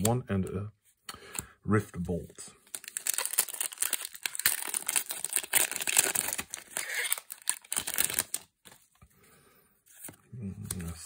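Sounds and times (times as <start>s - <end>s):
foil wrapper crinkling and tearing: 2.7s - 8.5s.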